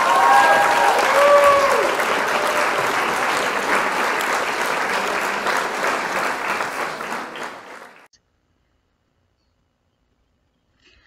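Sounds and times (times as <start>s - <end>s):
audience applause: 0.0s - 8.1s.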